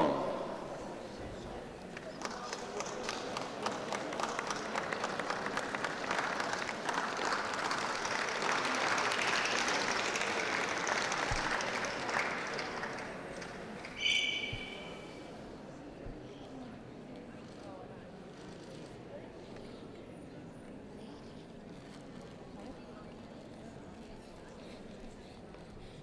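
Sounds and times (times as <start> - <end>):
audience applause: 2.0 - 13.6
high-pitched squeak: 14.0 - 15.2.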